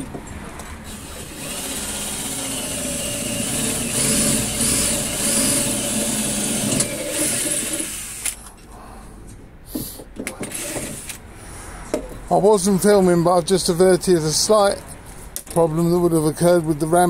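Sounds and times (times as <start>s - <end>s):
cordless drill drilling into steel: 0.9s - 8.3s, 10.5s - 11.2s.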